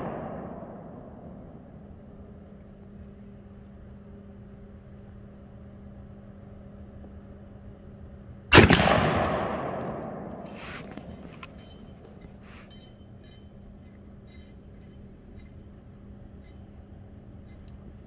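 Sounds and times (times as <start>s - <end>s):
rifle shot echoing: 0.0s - 1.9s, 8.5s - 11.6s.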